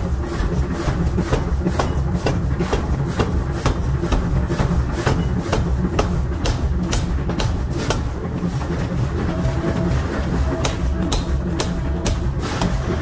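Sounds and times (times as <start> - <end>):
power hammer striking steel: 0.9 - 8.3, 9.3 - 13.0
low rumble: 5.6 - 13.0.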